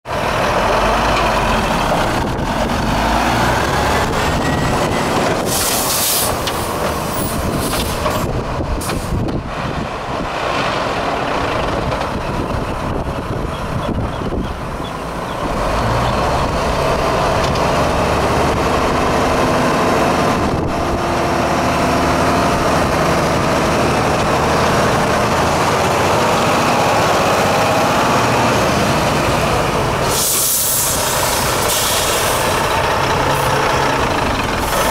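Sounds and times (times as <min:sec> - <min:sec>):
diesel truck engine: 0:00.0 - 0:34.9
air brake hiss: 0:05.4 - 0:06.5, 0:30.0 - 0:32.6.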